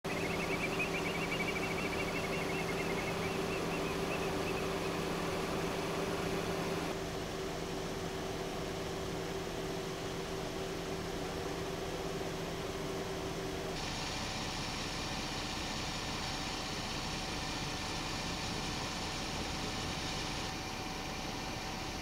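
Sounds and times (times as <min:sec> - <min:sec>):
high warbling chirp: 0:00.0 - 0:06.9
vehicle engine idling: 0:00.0 - 0:22.0.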